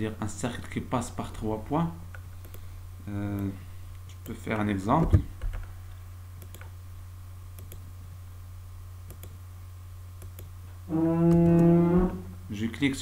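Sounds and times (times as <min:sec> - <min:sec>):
steady low hum: 0:00.0 - 0:13.0
computer mouse clicks: 0:02.1 - 0:02.6, 0:06.4 - 0:06.7, 0:07.6 - 0:07.8, 0:09.1 - 0:09.4, 0:10.2 - 0:10.5.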